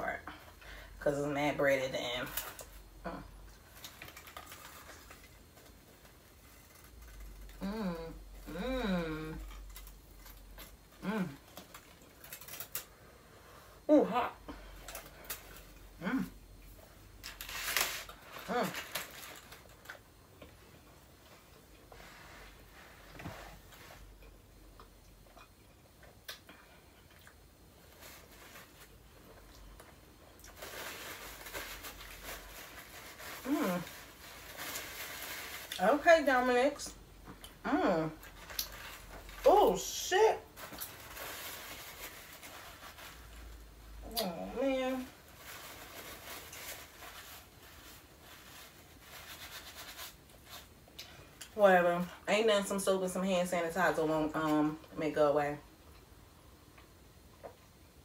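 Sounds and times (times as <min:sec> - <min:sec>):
paper wrapper crinkling: 0:02.2 - 0:07.7, 0:09.4 - 0:13.0, 0:17.1 - 0:20.1, 0:30.4 - 0:36.8, 0:38.1 - 0:50.8.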